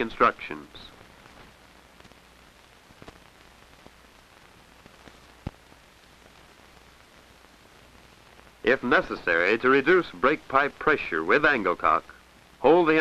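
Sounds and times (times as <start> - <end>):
film soundtrack hiss and hum: 0.0 - 13.0
clicks and pops: 2.9 - 6.9.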